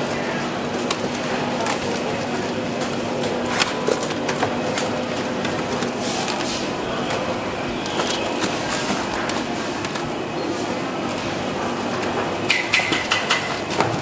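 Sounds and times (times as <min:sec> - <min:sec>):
steady machine hum: 0:00.0 - 0:14.0
clicks and taps of parts: 0:12.5 - 0:14.0.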